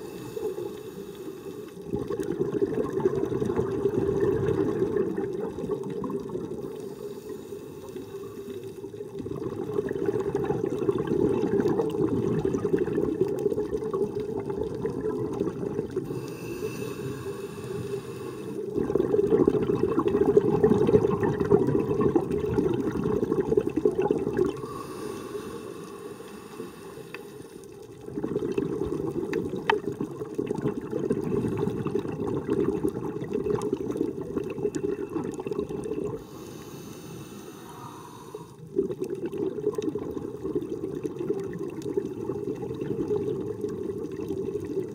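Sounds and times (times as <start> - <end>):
diver breathing through regulator: 0.0 - 1.9, 6.7 - 8.9, 16.0 - 18.8, 24.4 - 27.8, 34.8 - 38.7
exhaled bubbles rushing: 1.8 - 6.8, 8.9 - 16.2, 18.6 - 24.8, 27.7 - 36.3, 38.6 - 44.9.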